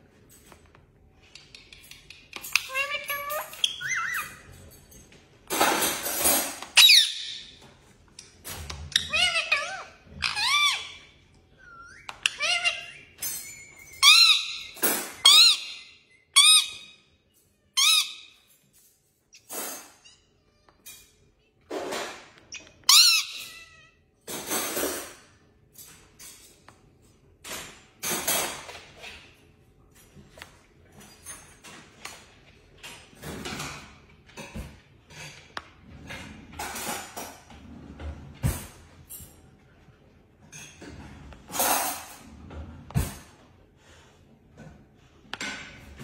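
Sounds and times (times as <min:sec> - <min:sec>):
parrot squeaky calls: 0:02.5 - 0:04.5, 0:06.8 - 0:07.6, 0:08.9 - 0:18.5, 0:22.5 - 0:24.0
parrot harsh squawks: 0:06.8 - 0:07.4.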